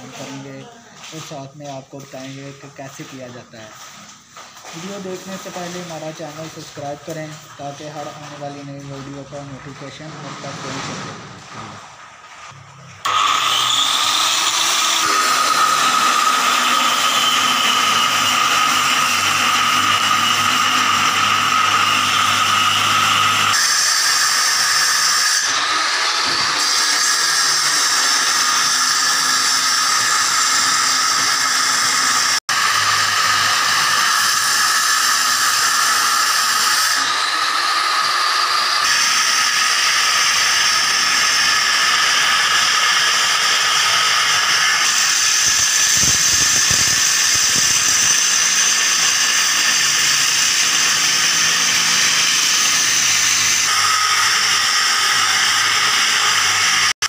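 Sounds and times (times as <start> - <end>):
angle grinder cutting brick: 0.0 - 57.0.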